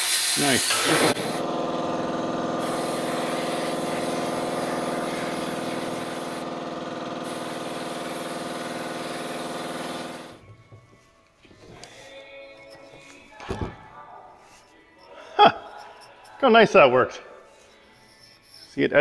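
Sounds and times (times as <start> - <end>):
sandblast air hiss: 0.0 - 1.4, 2.5 - 6.5, 7.2 - 10.4.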